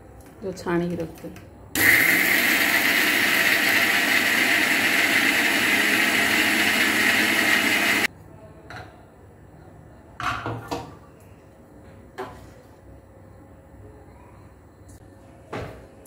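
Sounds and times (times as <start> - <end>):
mixer grinder running: 1.8 - 8.1.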